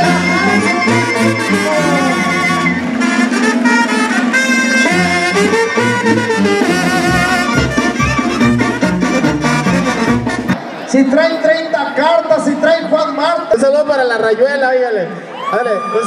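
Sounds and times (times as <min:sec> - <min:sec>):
low bass line: 0:00.0 - 0:03.0, 0:04.8 - 0:10.6
brass band playing: 0:00.0 - 0:10.8.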